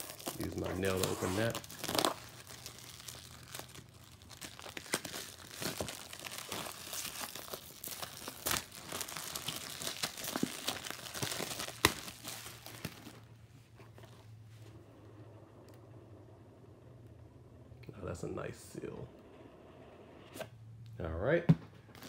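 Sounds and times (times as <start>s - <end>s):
plastic shrink-wrap tearing: 0.0s - 13.3s.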